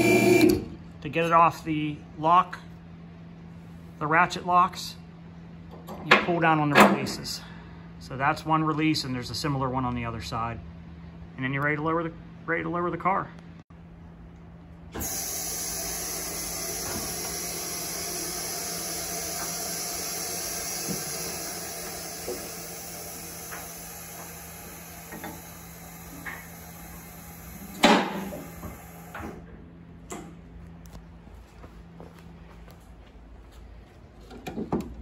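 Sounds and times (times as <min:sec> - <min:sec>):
hydraulic lift hissing: 0:15.0 - 0:29.4
loud clunk: 0:27.7 - 0:29.4.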